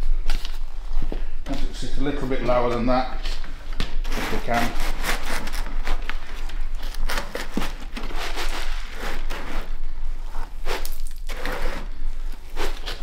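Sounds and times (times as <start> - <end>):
plastic scoop scraping soil: 10.6 - 13.0.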